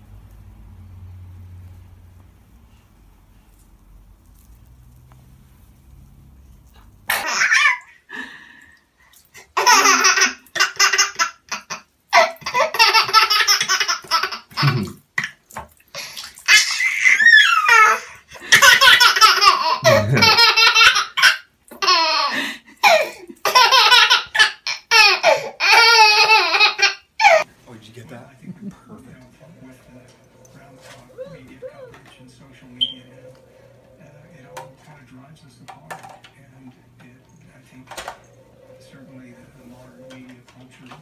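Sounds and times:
baby laughing: 7.1s - 8.1s, 9.4s - 15.0s, 16.0s - 27.5s, 30.4s - 32.1s
water pouring into bathtub: 14.6s - 18.2s.

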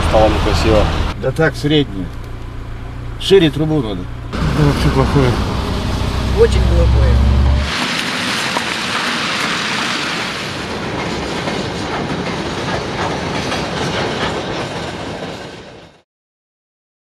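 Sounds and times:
train wheels clacking: 7.8s - 16.0s.

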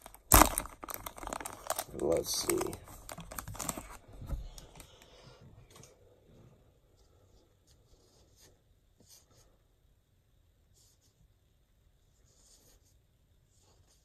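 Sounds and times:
plastic wrapper crinkling: 0.0s - 5.0s.

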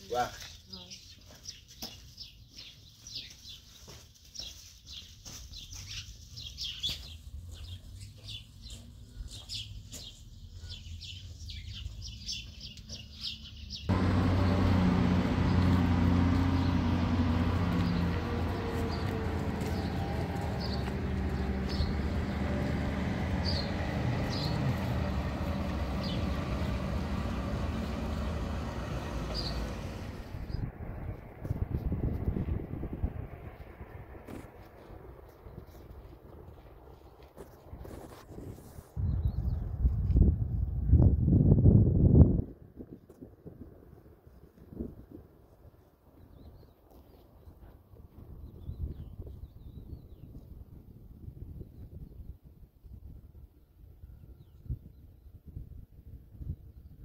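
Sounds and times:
small birds chirping: 0.0s - 30.6s
steady low rumble: 13.9s - 37.3s.

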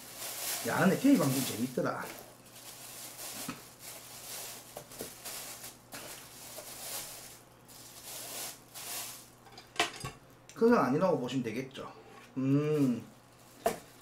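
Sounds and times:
plastic bag rustling and crinkling: 0.0s - 9.5s, 12.8s - 14.0s.

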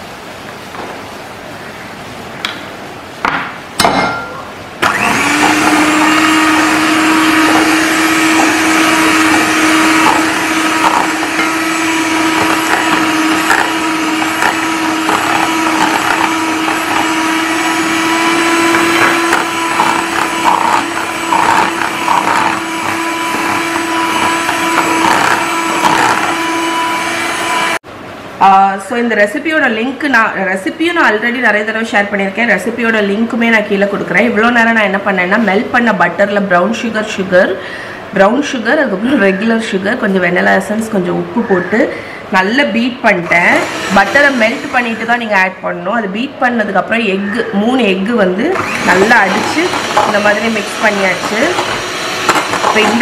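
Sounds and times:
electric hand mixer running: 4.8s - 27.8s, 43.2s - 45.4s, 48.5s - 53.0s
beaters clicking in bowl: 48.5s - 53.0s.

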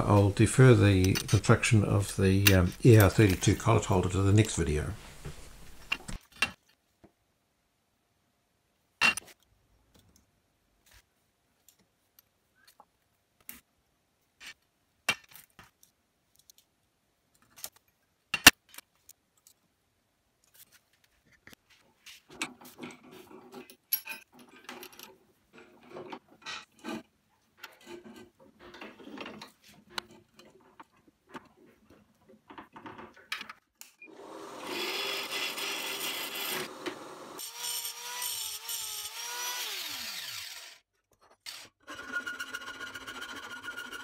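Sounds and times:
tools rattling and scraping: 0.2s - 1.8s, 22.2s - 33.6s.

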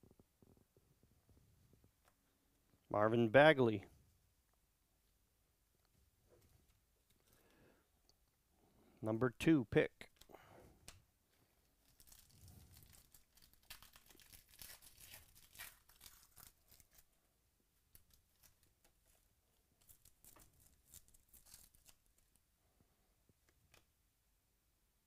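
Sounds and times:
foil wrapper tearing and crinkling: 11.8s - 17.2s, 19.8s - 22.4s.

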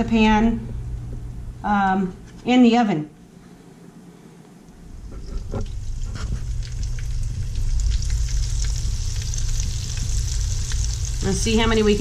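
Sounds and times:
meat frying in hot oil: 4.8s - 12.0s.

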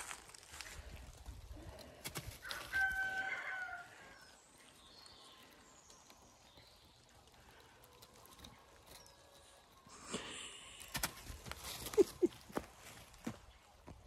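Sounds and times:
rooster crowing: 2.4s - 4.3s.

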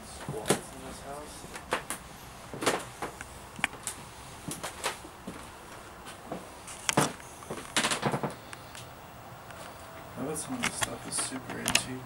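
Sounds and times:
footsteps on wooden floor: 4.4s - 7.6s.

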